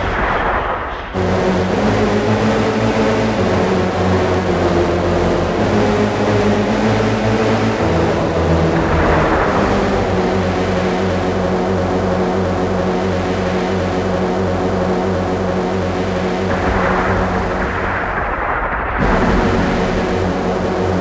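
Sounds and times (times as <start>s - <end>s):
noisy droning electronic music: 0.0s - 21.0s
low bass notes: 1.2s - 21.0s.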